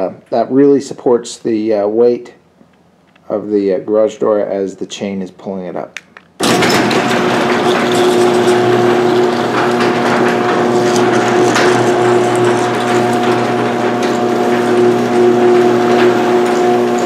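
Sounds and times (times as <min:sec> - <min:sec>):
garage door opener motor hum: 0:06.4 - 0:17.0.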